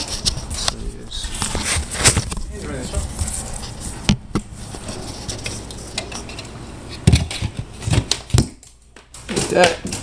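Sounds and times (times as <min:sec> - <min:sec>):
speaker knocks and clatter: 0:07.0 - 0:10.0.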